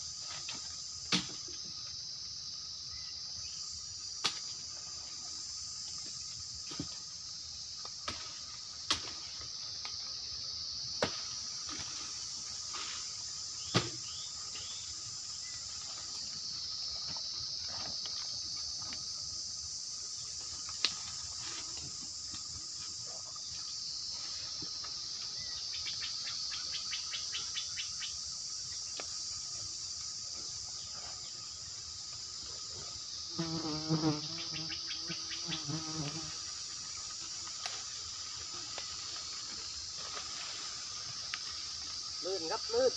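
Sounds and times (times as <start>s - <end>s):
high-pitched insect chorus: 0.0s - 42.9s
branches snapping and knocking: 8.0s - 10.0s.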